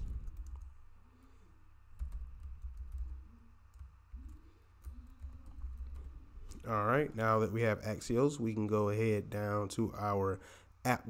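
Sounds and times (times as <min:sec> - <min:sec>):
computer keyboard typing: 0:00.0 - 0:00.8, 0:01.9 - 0:06.6.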